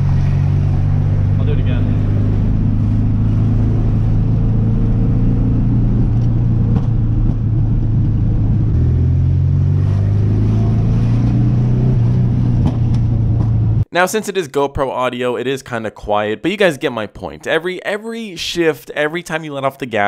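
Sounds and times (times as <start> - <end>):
car engine running from inside cabin: 0.0 - 13.9.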